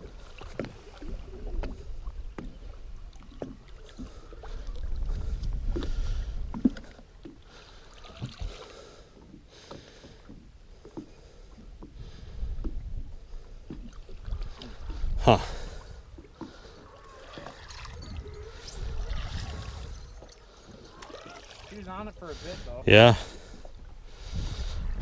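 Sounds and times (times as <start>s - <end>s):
wind rumbling on microphone: 0.0s - 7.2s, 11.7s - 21.0s, 21.6s - 25.0s
water lapping against boat: 0.0s - 25.0s.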